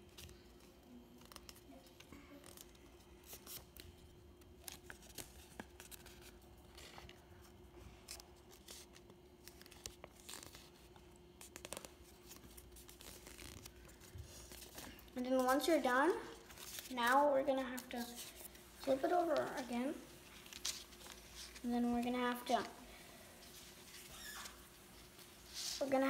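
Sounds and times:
faint steady hum: 0.0s - 26.0s
paper being folded and creased: 0.0s - 26.0s.

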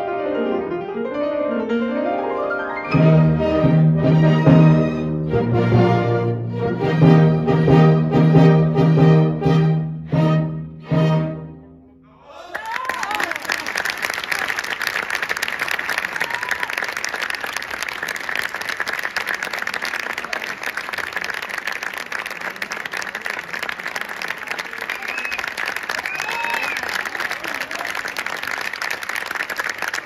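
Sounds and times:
audience applauding: 12.3s - 30.0s.

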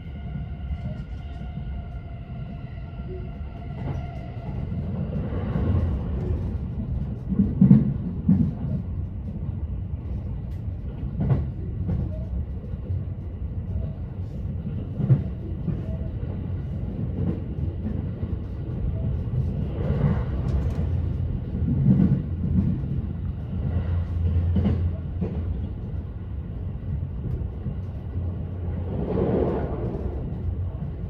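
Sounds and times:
train wheels rumbling on rail: 0.0s - 31.0s.

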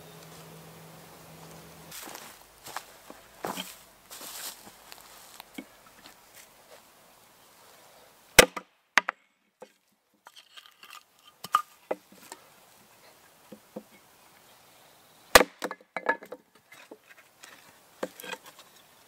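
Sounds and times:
hatchet chopping wood: 8.4s - 9.2s, 15.3s - 16.4s.

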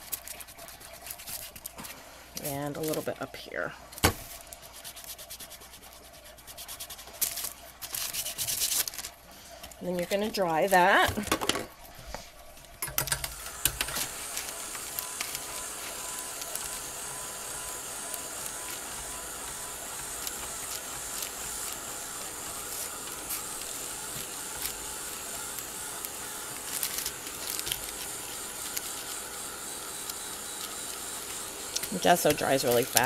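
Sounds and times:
hot-air tool hissing: 13.3s - 33.0s.

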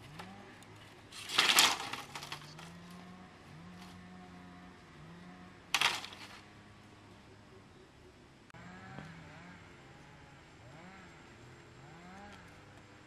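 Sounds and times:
rattling clatter of hard objects: 0.9s - 3.0s, 5.8s - 6.4s.

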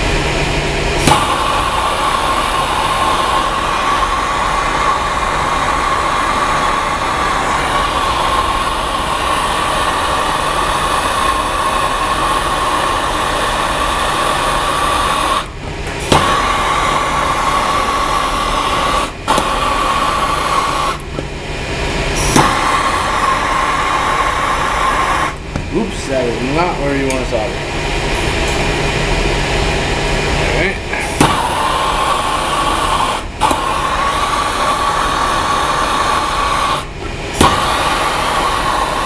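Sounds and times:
gas torch flame roaring hiss: 0.0s - 39.0s
torch igniter click: 1.0s - 1.8s, 19.3s - 19.7s, 22.2s - 22.8s.

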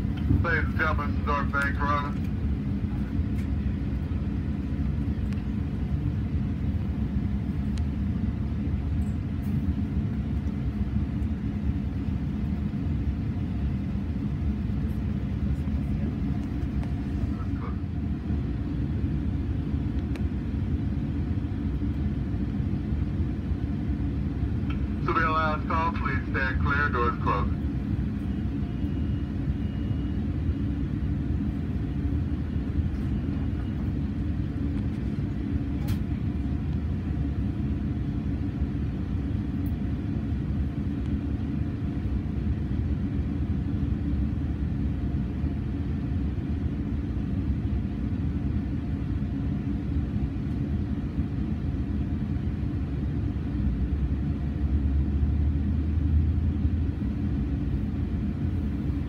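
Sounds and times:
train coach rumble and hum: 0.0s - 59.0s.

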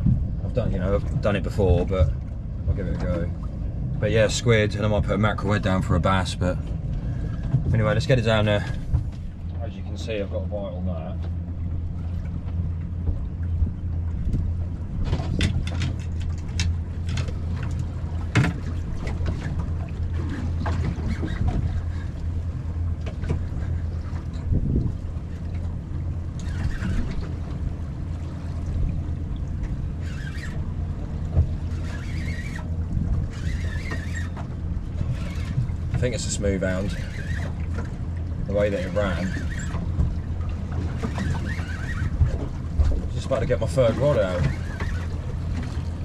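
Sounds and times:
low wind rumble on microphone: 0.0s - 46.0s
sharp clicks and knocks: 14.2s - 19.6s.

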